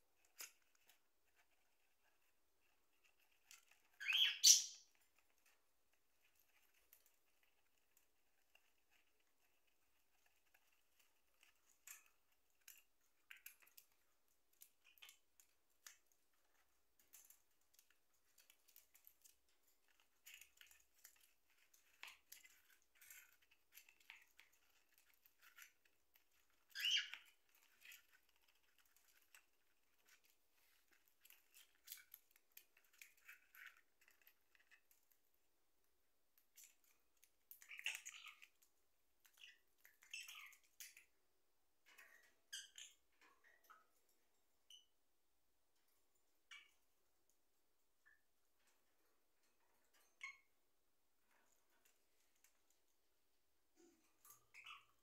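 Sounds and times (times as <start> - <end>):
bird chewing cardboard: 0.2 - 35.1.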